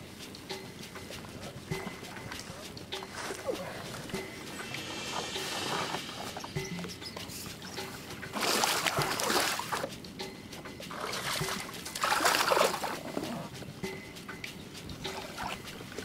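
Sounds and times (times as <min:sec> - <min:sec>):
shallow water splashing: 0:07.3 - 0:09.9, 0:10.9 - 0:13.5.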